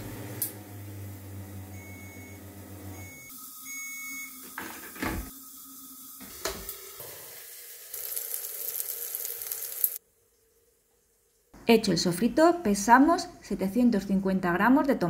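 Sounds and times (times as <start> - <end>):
food sizzling in oil: 3.0 - 10.0.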